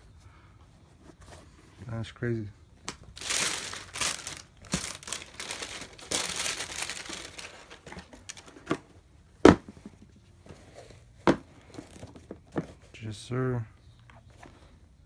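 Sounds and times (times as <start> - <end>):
tissue paper rustling: 3.1 - 8.5.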